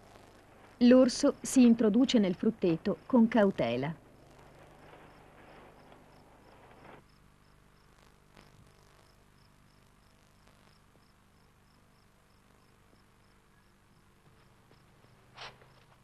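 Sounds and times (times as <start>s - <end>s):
soft rustling hiss: 0.0s - 16.0s
cricket chirping: 4.2s - 15.8s
faint ticks: 7.8s - 11.2s.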